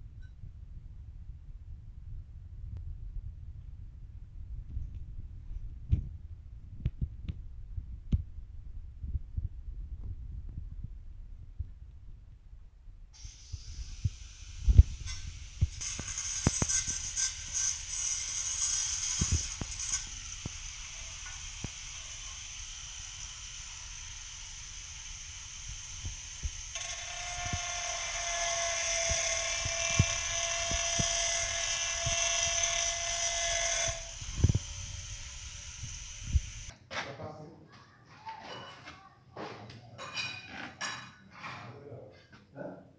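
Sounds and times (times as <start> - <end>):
angle grinder cutting tile: 13.2 - 36.7.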